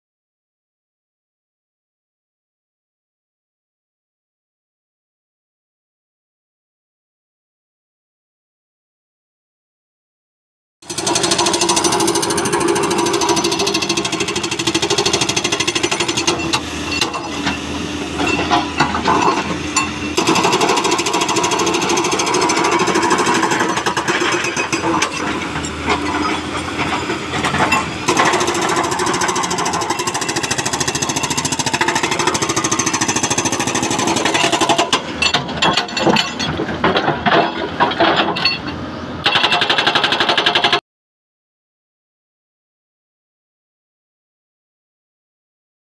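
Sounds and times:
diesel engine running: 10.9s - 39.3s
hydraulic breaker hammering rock: 10.9s - 40.8s.

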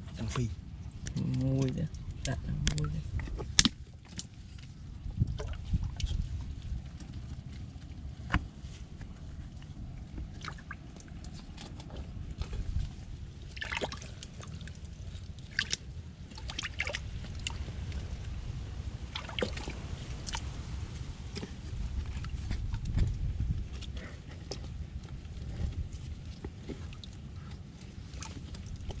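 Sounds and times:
low rumble: 0.0s - 29.0s
muddy water sloshing and dripping: 0.0s - 29.0s
small splashes: 10.2s - 23.0s.

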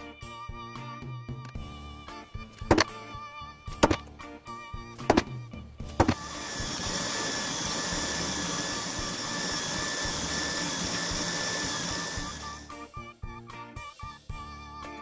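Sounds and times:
background music: 0.0s - 8.4s, 11.4s - 15.0s
drilling machine motor whine: 6.0s - 12.8s.

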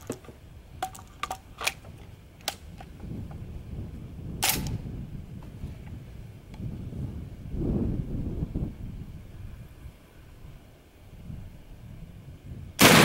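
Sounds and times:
shotgun handling clicks: 0.0s - 3.0s, 4.4s - 4.8s
shotgun shot: 12.8s - 13.0s.

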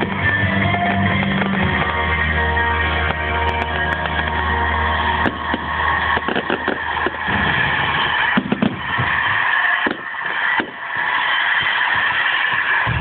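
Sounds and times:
fireworks bangs and crackles: 0.0s - 13.0s.

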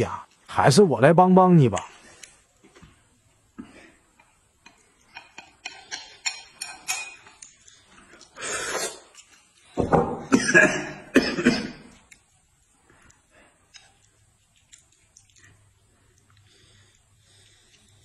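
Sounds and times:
chopsticks clinking on a ceramic bowl: 4.7s - 7.4s.

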